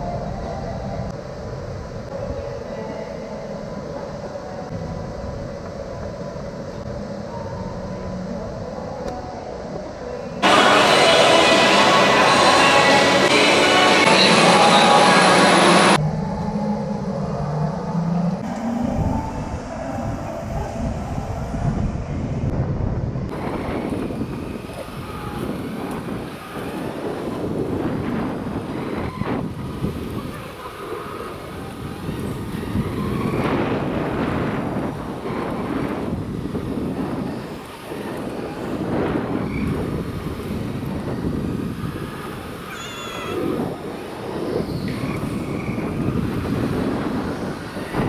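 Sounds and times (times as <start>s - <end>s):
loud dense noise: 0.0s - 48.0s
go-kart running noise: 10.4s - 20.9s, 23.3s - 48.0s
wind buffeting microphone: 15.8s - 48.0s.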